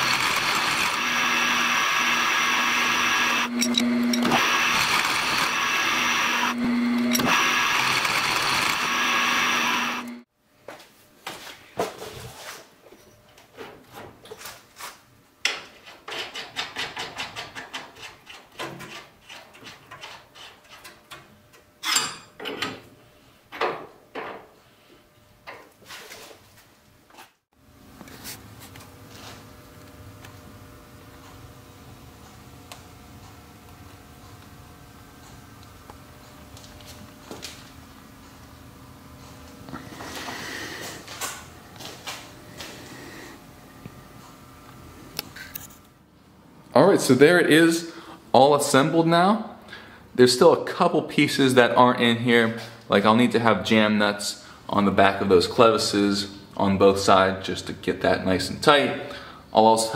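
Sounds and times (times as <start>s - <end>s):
milling machine cutting metal: 0.0s - 10.2s.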